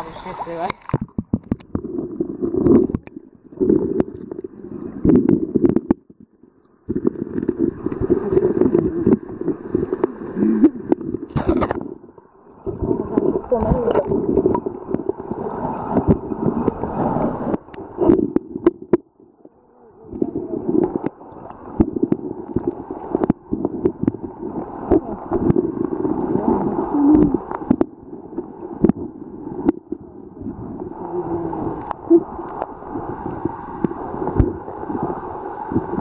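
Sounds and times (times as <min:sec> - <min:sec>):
muffled underwater river rushing: 0:00.0 - 0:36.0
sharp underwater clicks and knocks: 0:00.6 - 0:02.0, 0:05.0 - 0:06.2, 0:10.9 - 0:11.9, 0:17.5 - 0:19.1, 0:20.8 - 0:24.3, 0:27.5 - 0:27.9, 0:28.7 - 0:29.0.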